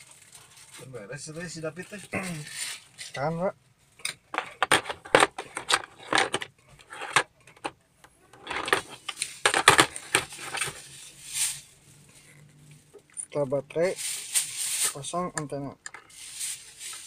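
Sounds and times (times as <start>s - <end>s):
plastic radio clicks and rattles: 4.0s - 10.8s.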